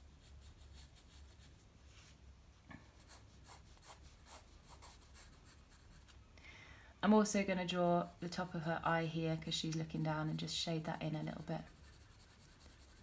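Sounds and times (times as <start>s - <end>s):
pencil scratching on paper: 0.0s - 1.6s, 3.0s - 6.1s, 11.1s - 13.0s.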